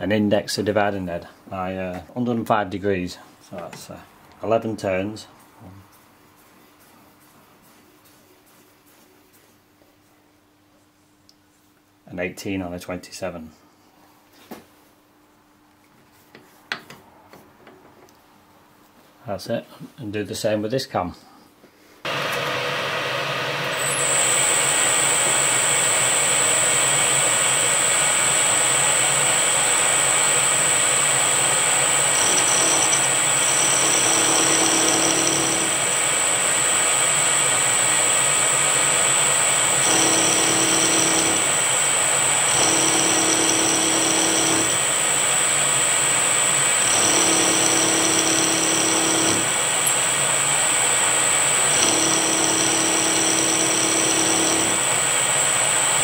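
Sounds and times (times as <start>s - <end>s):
end mill cutting metal: 23.6s - 56.0s
milling spindle whine: 23.7s - 56.0s.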